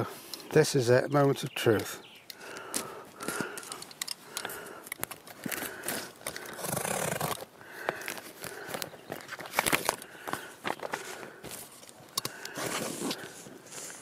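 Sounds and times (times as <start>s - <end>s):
tape and cardboard crackling: 5.0s - 14.0s.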